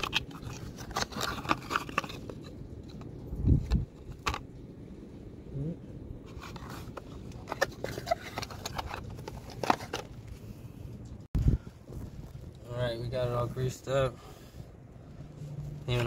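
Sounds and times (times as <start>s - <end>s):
small clicks and scrapes: 0.0s - 4.5s, 6.3s - 11.3s.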